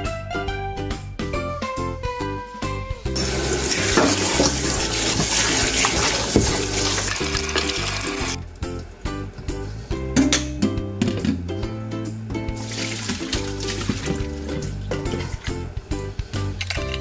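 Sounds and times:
tap water splashing into bowl: 3.7 - 7.8, 12.7 - 14.4.

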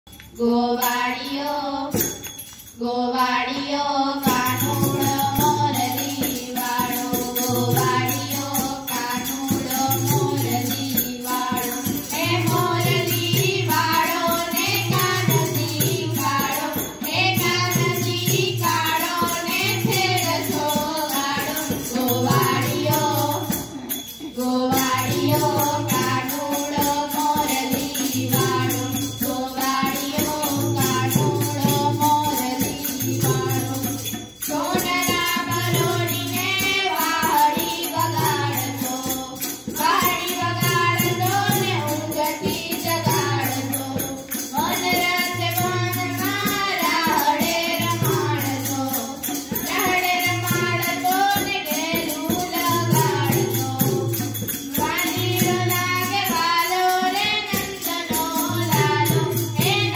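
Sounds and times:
jingling hand percussion: 0.0 - 59.9.

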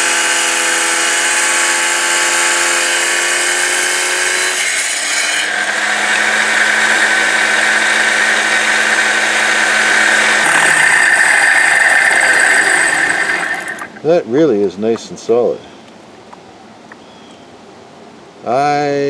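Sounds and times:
wet saw grinding rock: 0.0 - 14.0.

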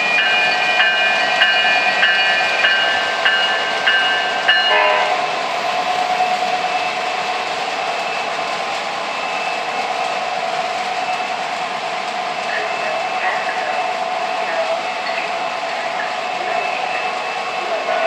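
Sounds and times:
model locomotive bell ringing: 0.0 - 5.3.

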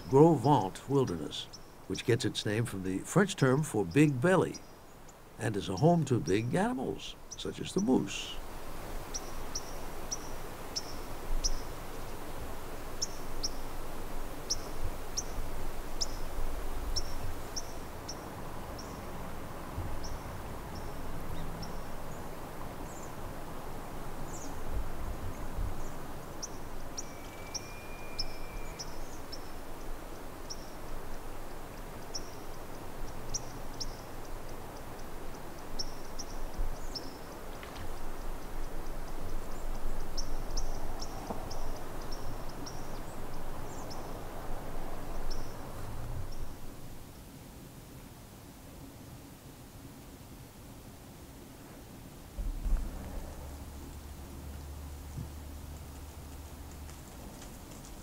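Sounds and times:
small bird chirping: 25.8 - 30.8
thin steady whistle: 27.1 - 28.8.

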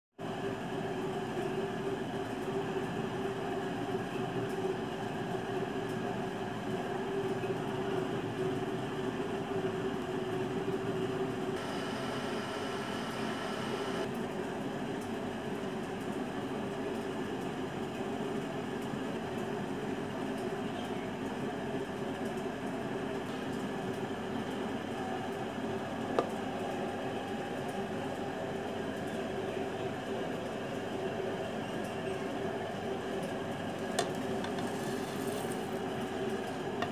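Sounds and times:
steady mechanical hum: 0.2 - 36.9
held tones: 11.6 - 14.1.

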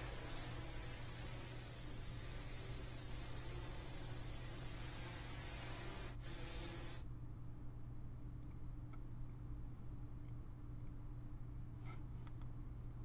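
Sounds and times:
hiss: 0.0 - 7.0.

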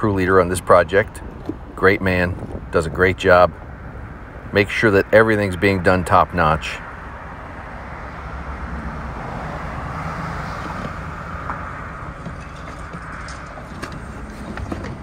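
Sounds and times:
knocks and clicks of debris: 10.6 - 15.0.

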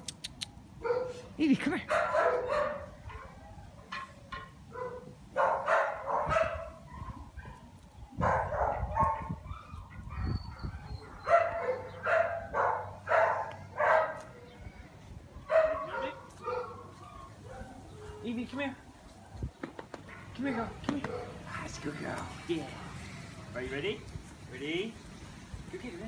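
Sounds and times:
dog barking: 0.8 - 1.2, 1.9 - 3.5, 4.7 - 7.6, 8.2 - 14.3, 15.5 - 18.1, 20.1 - 21.4.

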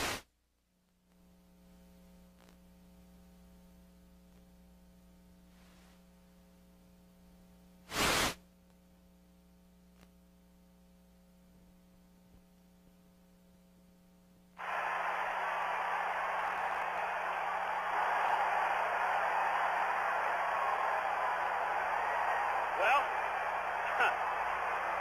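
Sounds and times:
burst of static: 0.0 - 0.3, 7.9 - 8.4
steady electrical hum: 0.3 - 25.0.

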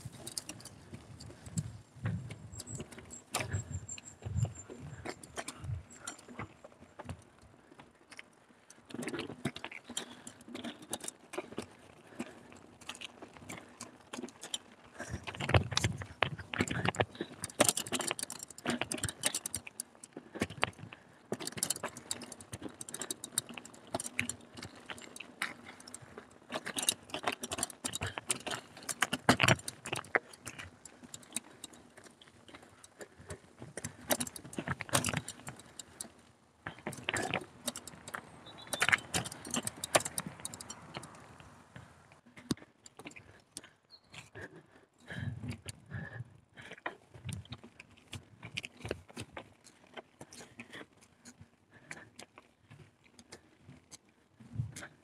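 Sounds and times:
mountain bike rattling over trail: 0.0 - 42.1.

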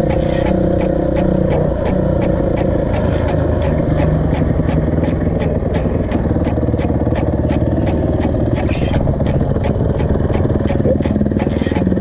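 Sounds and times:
light regular ticking: 0.0 - 12.0
motorcycle engine running: 0.0 - 12.0.

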